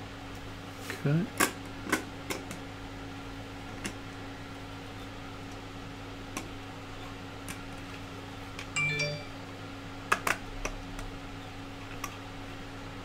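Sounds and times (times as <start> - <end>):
steady electrical hum: 0.0 - 13.0
brief pitched tone: 8.8 - 9.4.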